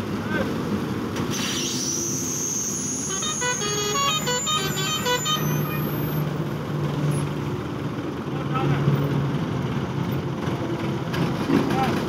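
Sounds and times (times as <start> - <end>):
engine hum: 0.0 - 12.0
musical vehicle horn tune: 2.6 - 6.2.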